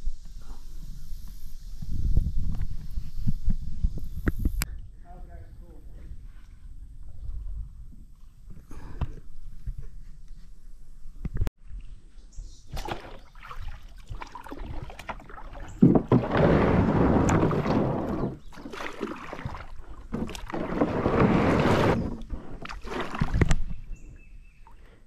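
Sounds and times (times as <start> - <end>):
water washing: 12.7 - 23.7
paddle splashing in water: 12.7 - 23.9.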